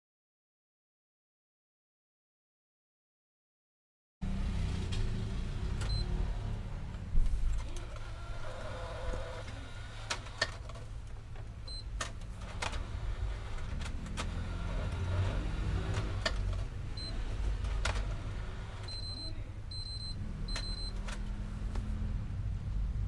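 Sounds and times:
low steady rumble: 4.3s - 23.0s
high-pitched electronic beeps: 18.9s - 21.0s.

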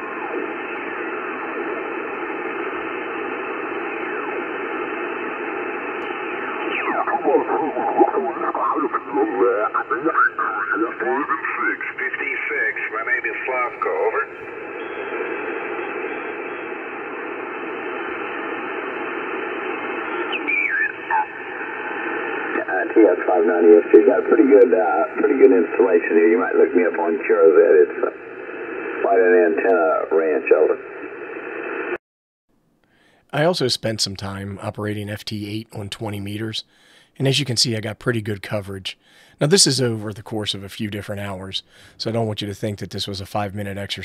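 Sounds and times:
radio band noise hiss: 0.0s - 32.0s, 33.0s - 44.0s
warbling radio whistles: 14.5s - 22.6s
faint descending radio whistles: 14.7s - 15.3s.

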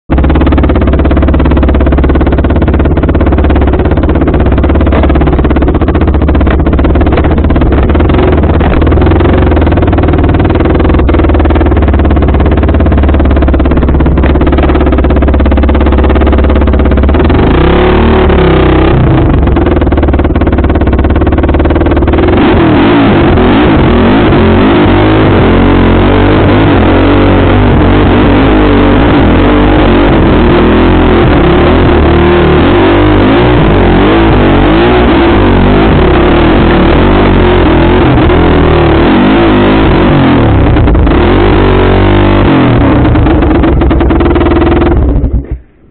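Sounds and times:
off-road motorcycle engine: 0.0s - 45.9s.

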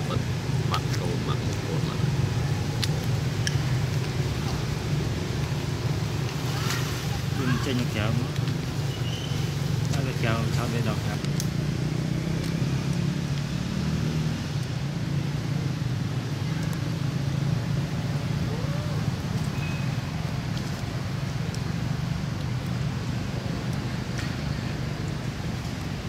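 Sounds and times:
low engine hum: 0.0s - 26.0s.

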